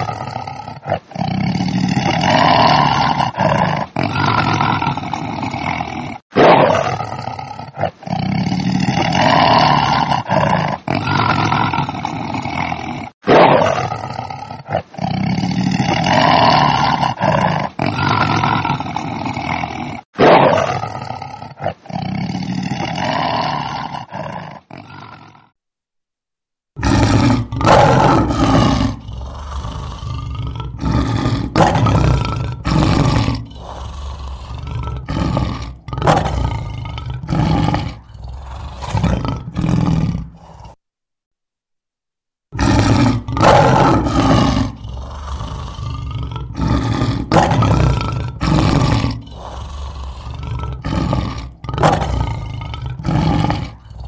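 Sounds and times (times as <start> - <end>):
tiger roaring: 0.0 - 25.5, 26.8 - 40.8, 42.6 - 54.0
big cat roaring in short breaths: 26.8 - 40.8, 42.6 - 54.0.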